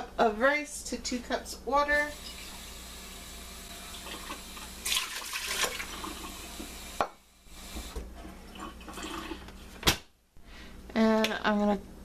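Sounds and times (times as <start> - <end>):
water pouring into metal pot: 3.7 - 6.6.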